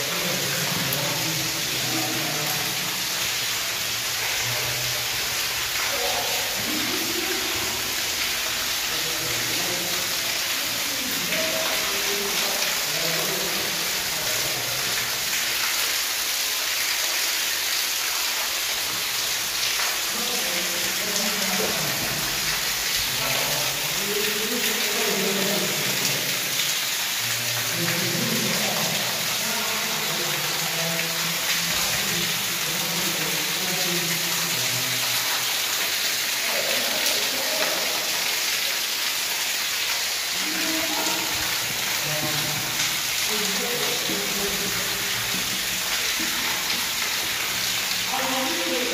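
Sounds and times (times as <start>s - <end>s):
water pouring and splashing: 0.0s - 48.9s.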